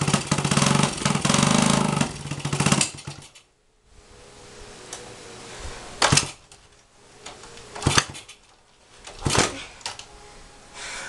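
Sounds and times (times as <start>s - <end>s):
motorcycle engine firing in bursts: 0.0s - 3.4s, 6.0s - 6.4s, 7.8s - 8.4s.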